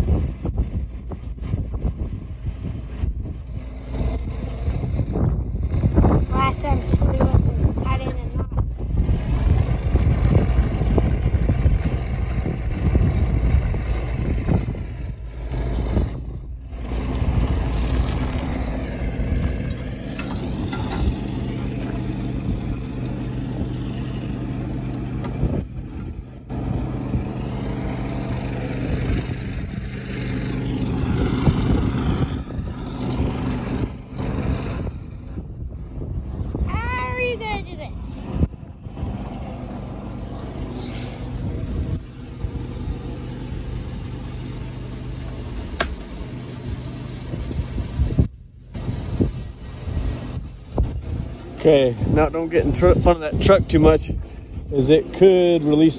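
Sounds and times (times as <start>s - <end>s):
engine idling: 0.0s - 55.9s
wind buffeting microphone: 0.0s - 55.9s.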